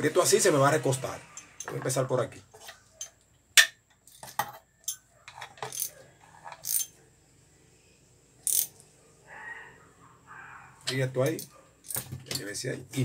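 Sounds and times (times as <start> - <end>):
socket wrench clicking: 5.6 - 5.9, 6.6 - 6.9, 8.4 - 8.8.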